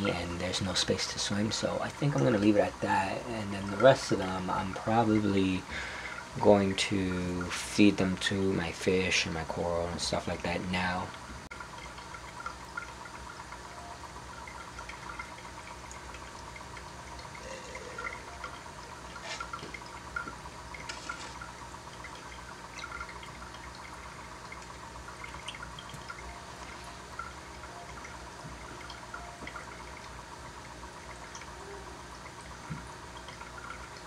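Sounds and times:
aquarium air bubbling: 0.0 - 34.0
steady low hum: 0.0 - 34.0.

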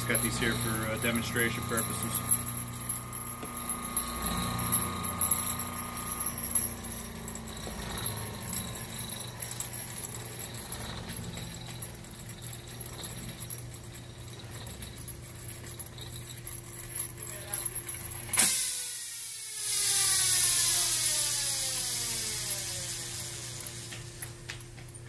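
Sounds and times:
ring oilers rattling: 0.0 - 18.6
electric motor running: 0.0 - 24.8.

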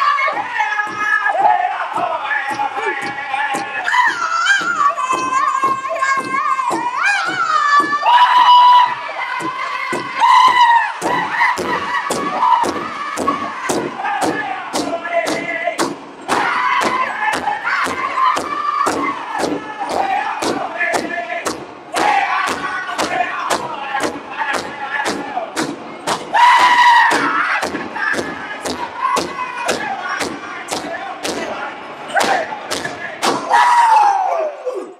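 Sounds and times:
group singing high-pitched chorus: 0.0 - 25.5
large drum struck in unison: 8.8 - 31.6.

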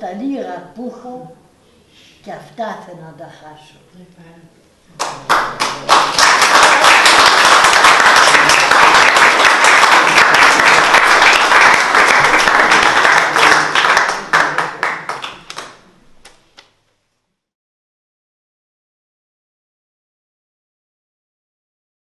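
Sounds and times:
audience applauding: 5.0 - 15.9.

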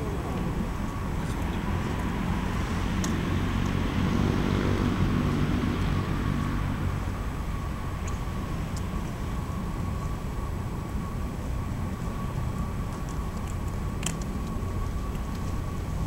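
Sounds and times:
passing vehicle engine: 0.0 - 7.9
low rumble of road traffic: 0.0 - 16.0.

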